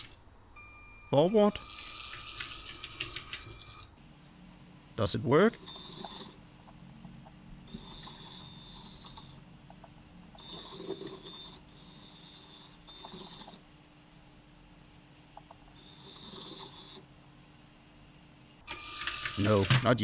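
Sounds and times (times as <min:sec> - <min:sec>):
toy train motors whirring: 0:05.6 - 0:06.4, 0:07.7 - 0:09.4, 0:10.4 - 0:13.6, 0:15.8 - 0:17.1.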